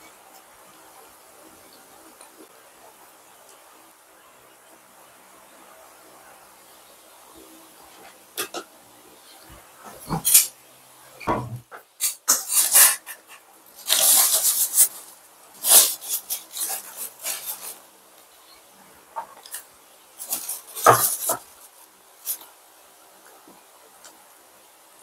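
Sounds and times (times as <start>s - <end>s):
dishes knocking on countertop: 11.3s - 11.6s
tissue paper crumpling: 13.8s - 15.0s.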